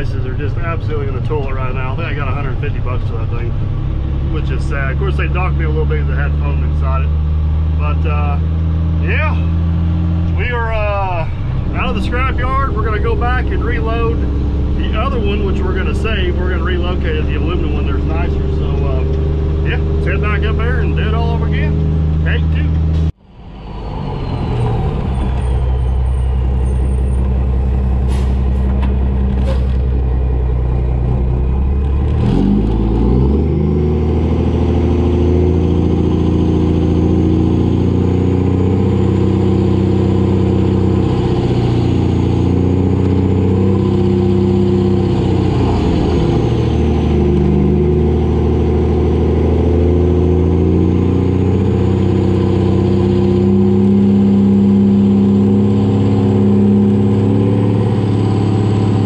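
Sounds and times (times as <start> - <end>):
truck diesel engine shifting gears: 0.0 - 59.0.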